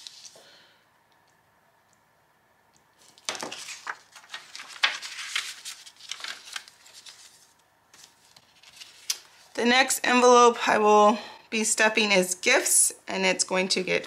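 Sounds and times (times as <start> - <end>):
paper rustling and crinkling: 0.0 - 0.4, 3.0 - 9.6.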